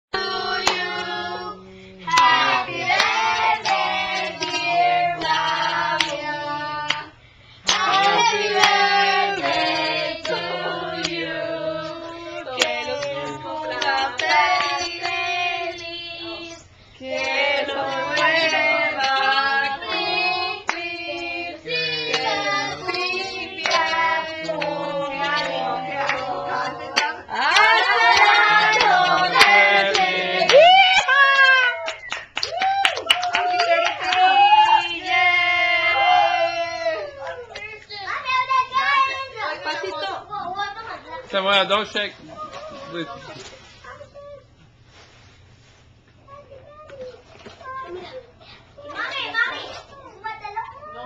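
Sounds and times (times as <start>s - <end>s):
women and children singing: 0.0s - 30.7s, 33.8s - 36.9s
hand claps: 27.0s - 34.3s.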